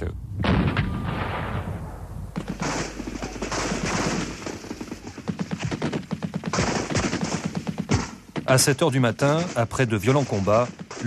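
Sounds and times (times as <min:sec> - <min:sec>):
automatic gunfire bursts: 0:02.4 - 0:08.3.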